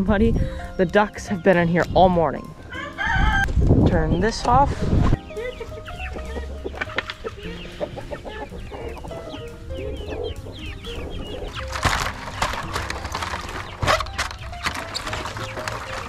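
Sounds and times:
soft background music: 0.0 - 16.0
hens clucking: 0.9 - 16.0
rustling clatter: 11.4 - 16.0.

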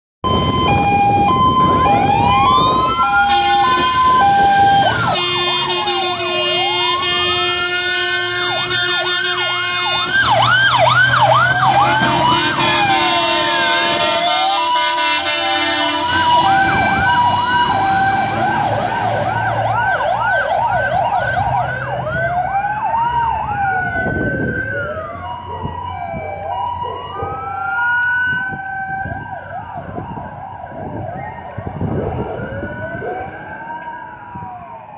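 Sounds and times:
fire engine sirens wailing: 0.2 - 34.9
air horns blasting: 0.3 - 19.4.

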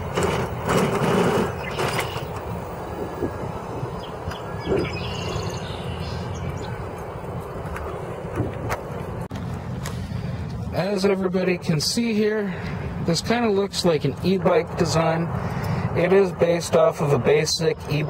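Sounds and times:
wind over microphone: 0.0 - 10.8
tyre noise on pavement: 0.0 - 18.0.

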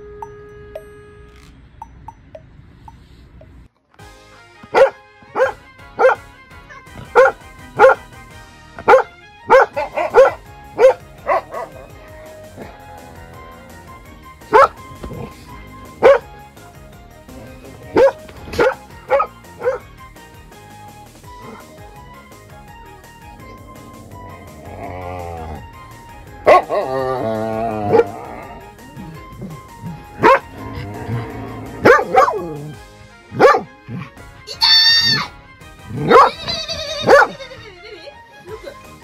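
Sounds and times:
soft background music: 0.0 - 39.0
dog barking: 4.7 - 6.2, 7.0 - 8.0, 8.8 - 12.0, 14.5 - 15.2, 16.0 - 16.3, 17.9 - 19.9, 26.4 - 26.8, 29.8 - 30.5, 31.8 - 32.6, 33.3 - 34.1, 35.9 - 37.4.

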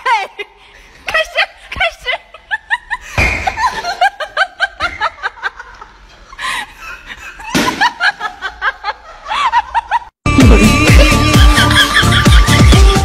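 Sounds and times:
people giggling: 1.1 - 13.0
loud electronic music: 10.2 - 13.0.

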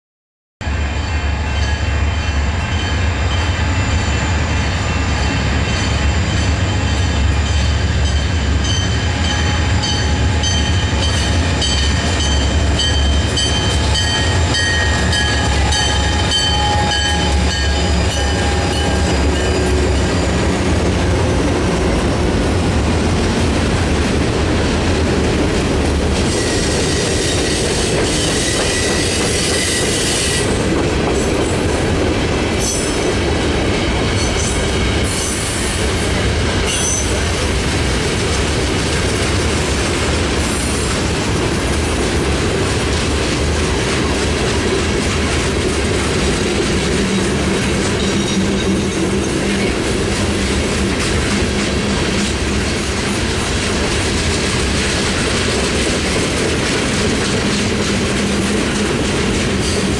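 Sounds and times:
train wheels clacking: 1.6 - 59.9
high-pitched wheel squeal: 26.3 - 30.5.

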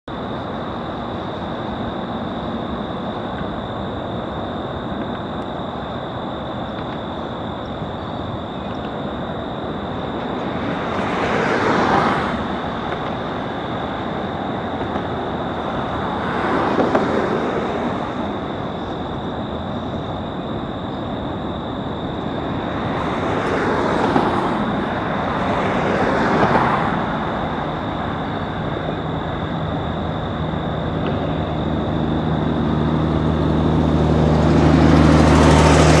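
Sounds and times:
thin steady high whine: 0.1 - 10.8, 17.4 - 23.4, 26.9 - 36.0
engine drone: 0.1 - 36.0
vehicles passing: 0.1 - 36.0.

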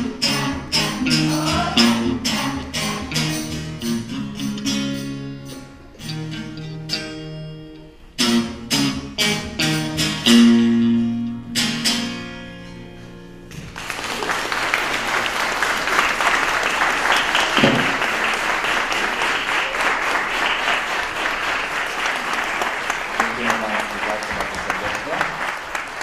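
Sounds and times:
guitar strumming chords: 0.0 - 13.8
audience applause: 13.7 - 26.0.

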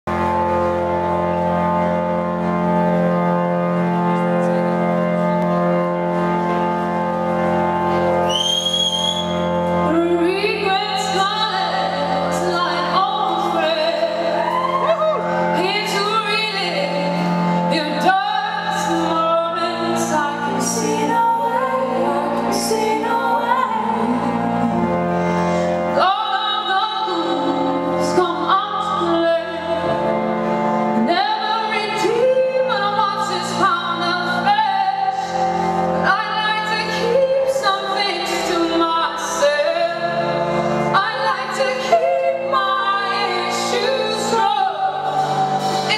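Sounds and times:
organ chords: 0.1 - 45.9
woman singing: 9.8 - 25.0, 25.9 - 30.2, 31.0 - 35.4, 36.0 - 40.3, 40.9 - 45.2.

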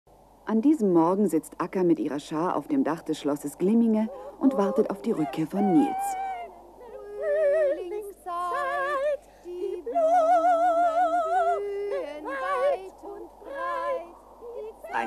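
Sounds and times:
cartoon goose voices singing: 4.2 - 15.0.

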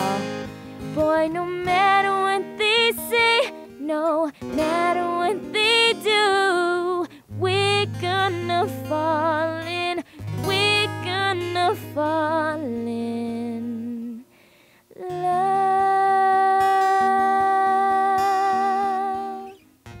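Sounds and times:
woman singing wordless notes: 0.0 - 19.6
acoustic guitar: 0.0 - 20.0.

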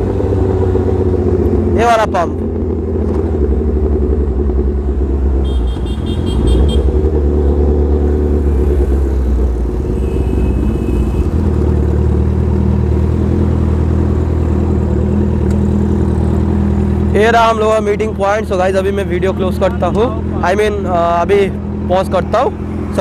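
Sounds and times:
motorcycle engine at low revs: 0.0 - 18.2.

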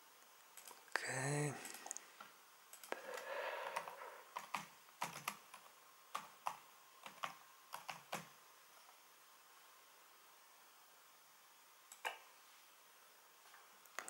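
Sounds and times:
faint keyboard typing: 0.5 - 2.1, 2.7 - 8.4, 11.9 - 12.3.

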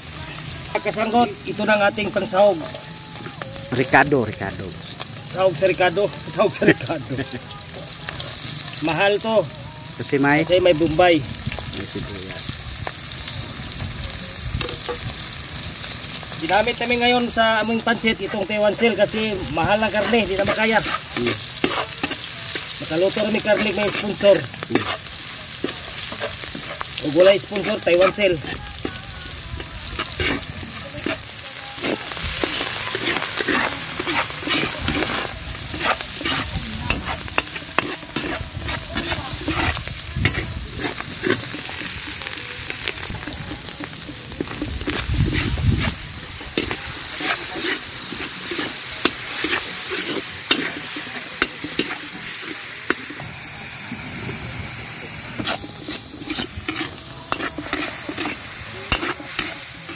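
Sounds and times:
food sizzling in hot oil: 0.0 - 59.9
metal ladle scraping a wok: 17.7 - 53.3, 53.9 - 59.9.

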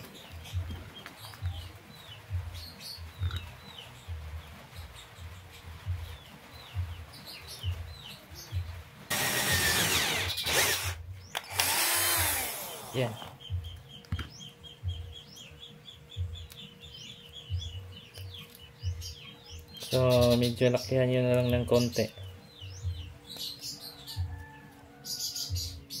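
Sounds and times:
cordless drill boring into plastic: 9.1 - 13.3
drill handling: 9.1 - 13.3.

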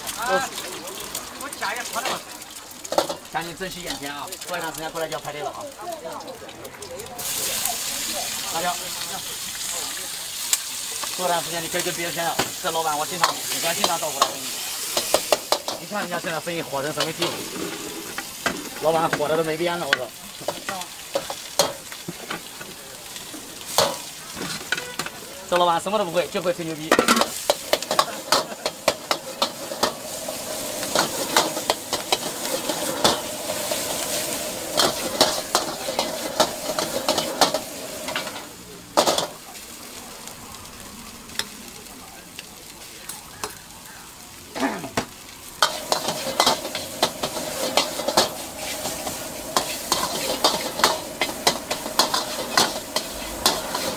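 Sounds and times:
food sizzling in a wok: 0.0 - 53.9
metal ladle scraping a wok: 16.9 - 18.5, 26.9 - 38.4, 45.6 - 53.9.

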